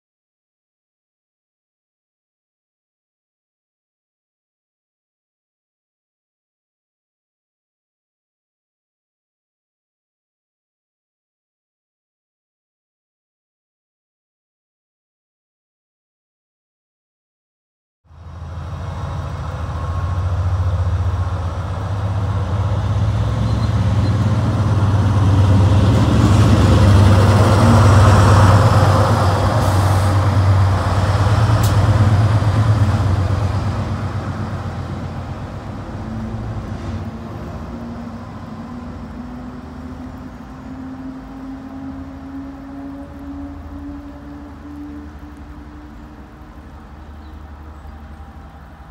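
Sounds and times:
diesel locomotive engine passing: 18.1 - 48.9.

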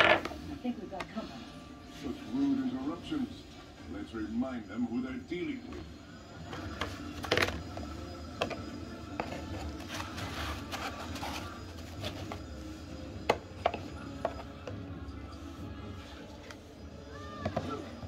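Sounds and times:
cardboard packaging rubbed and opened: 9.8 - 12.2.

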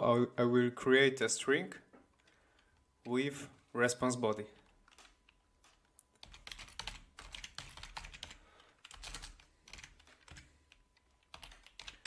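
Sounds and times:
faint keyboard typing: 2.0 - 3.3, 4.3 - 12.0.

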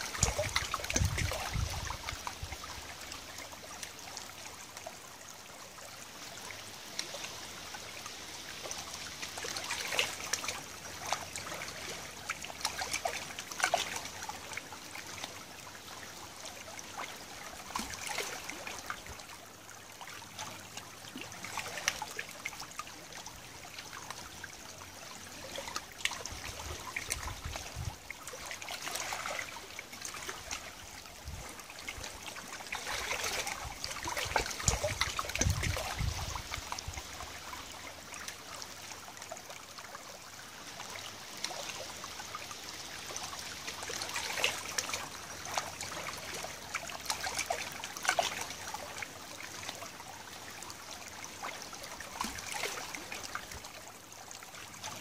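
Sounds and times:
river water trickling and lapping: 0.0 - 55.0.

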